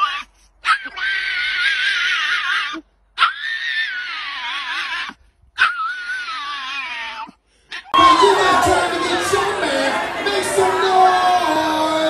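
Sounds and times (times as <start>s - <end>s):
small dog whining: 0.0s - 7.4s.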